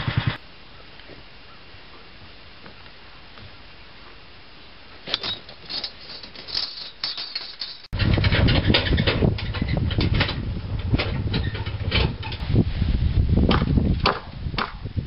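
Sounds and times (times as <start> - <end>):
small vehicle engine running: 0.0 - 0.4
wagon load knocking and rattling: 5.0 - 12.5.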